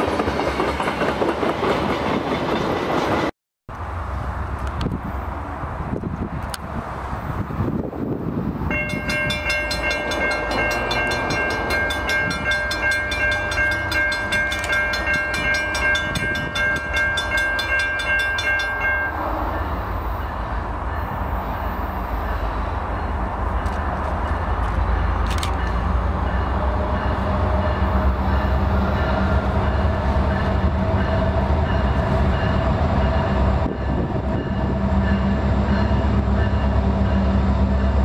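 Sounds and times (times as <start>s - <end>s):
railroad crossing bell ringing: 8.7s - 38.0s.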